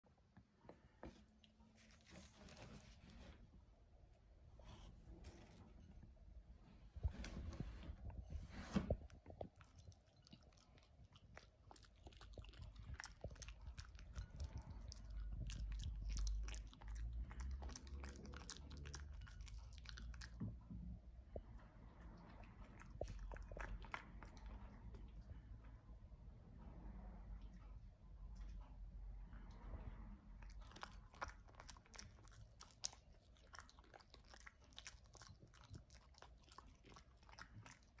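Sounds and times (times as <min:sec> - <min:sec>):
low dull rumble: 0:03.5 - 0:31.7
dog crunching chestnut: 0:09.4 - 0:20.4.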